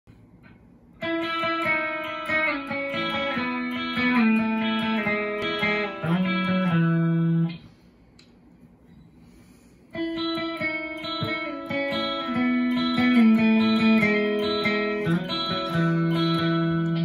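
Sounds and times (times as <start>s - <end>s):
electric guitar phrase: 1.0s - 7.6s, 10.0s - 17.0s.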